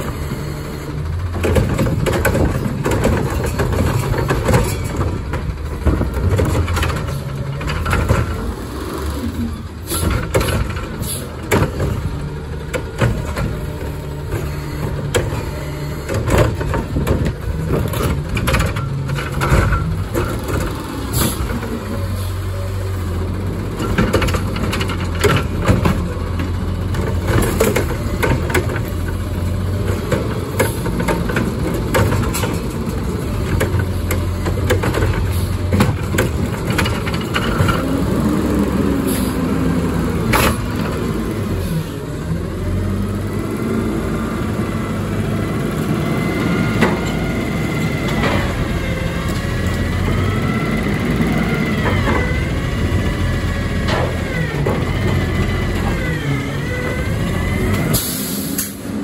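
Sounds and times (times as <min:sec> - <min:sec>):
garbage truck engine running: 0:00.0 - 0:59.0
sharp clanks and knocks: 0:01.3 - 0:08.5, 0:53.8 - 0:56.2.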